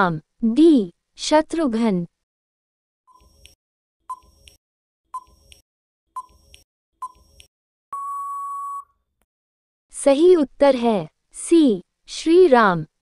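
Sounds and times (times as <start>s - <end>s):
steady beep: 8.0s - 8.9s.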